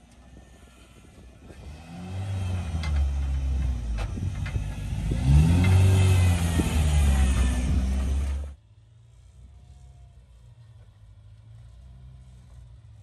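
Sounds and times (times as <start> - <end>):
buggy engine revving: 0.0 - 10.2.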